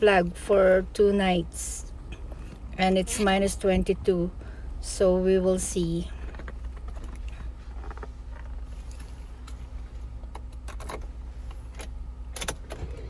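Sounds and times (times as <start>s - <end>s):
low engine hum: 0.0s - 13.0s
ignition key clicks and knocks: 10.3s - 11.1s, 11.7s - 13.0s.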